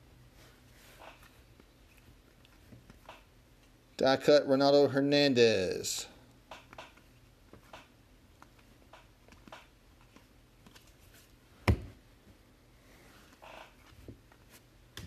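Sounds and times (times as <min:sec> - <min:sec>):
cards flicking and rustling: 0:00.9 - 0:03.7, 0:06.5 - 0:11.8.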